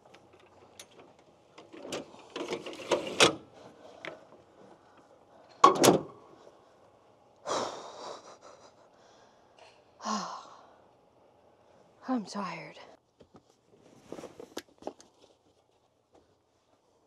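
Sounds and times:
sliding bed tray rattling: 0:01.6 - 0:03.5
tailgate slamming shut: 0:05.6 - 0:06.2.

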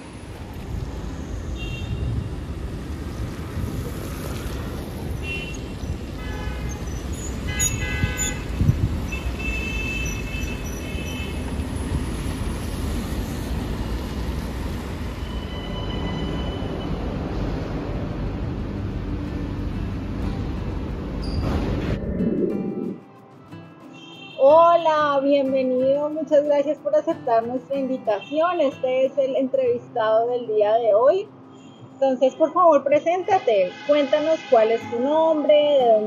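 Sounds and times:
road traffic rumble: 0:00.0 - 0:23.4.

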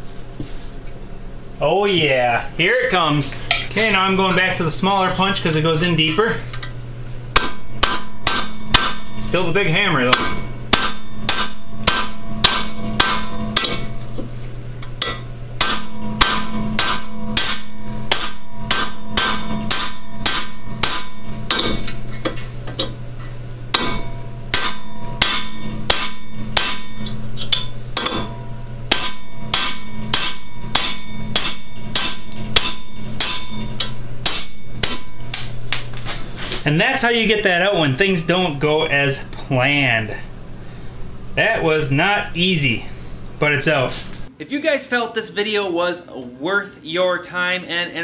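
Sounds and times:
steady low hum: 0:00.0 - 0:48.0
hammer clanging on steel punch: 0:07.4 - 0:09.4, 0:10.1 - 0:14.0, 0:15.0 - 0:23.0, 0:23.7 - 0:36.0.

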